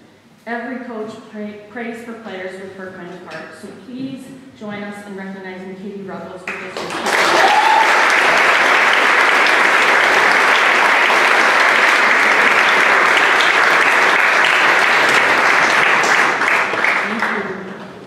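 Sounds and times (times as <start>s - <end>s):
audience applauding: 6.8s - 17.6s.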